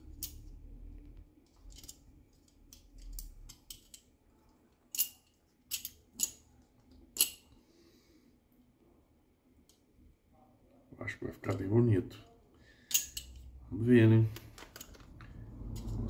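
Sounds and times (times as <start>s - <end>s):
clicks and taps handling wheel: 14.3s - 16.0s.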